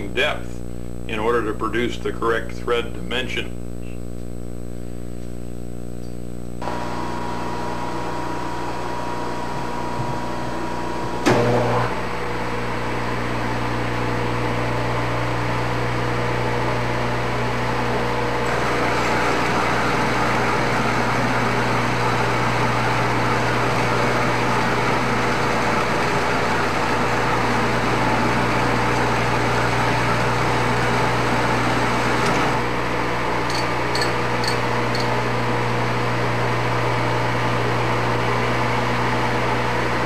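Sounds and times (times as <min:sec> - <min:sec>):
lathe motor and gear hum: 0:16.3 - 0:37.2.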